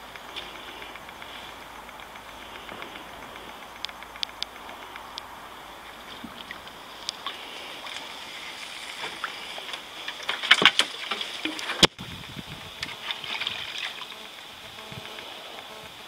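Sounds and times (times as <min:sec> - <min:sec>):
water lapping at hull: 0:00.0 - 0:14.6
branches scraping against kayak: 0:05.8 - 0:15.8.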